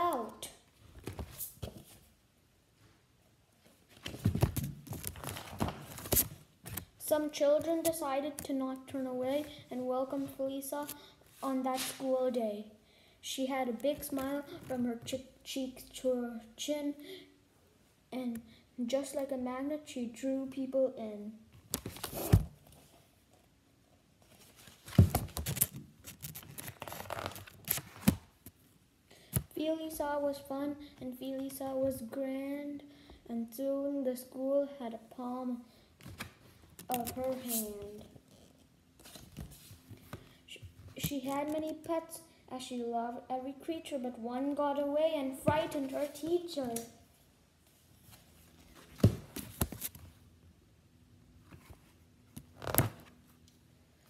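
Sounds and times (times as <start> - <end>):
book pages rustling: 3.6 - 6.9, 21.7 - 23.0, 24.2 - 28.6, 39.0 - 41.9, 48.0 - 50.1
book thump: 49.0 - 49.8.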